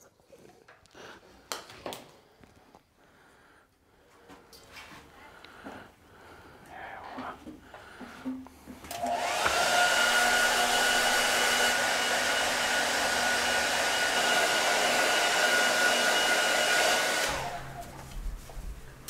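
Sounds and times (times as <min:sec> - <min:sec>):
hair dryer whining: 0:08.9 - 0:18.1.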